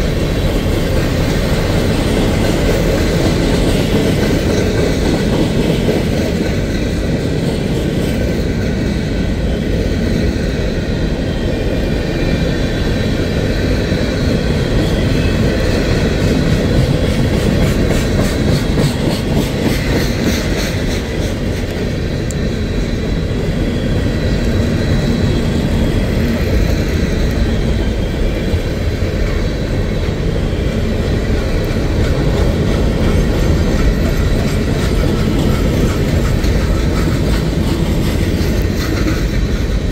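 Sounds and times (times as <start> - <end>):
steel train wheels rumbling on rail: 0.0 - 39.9.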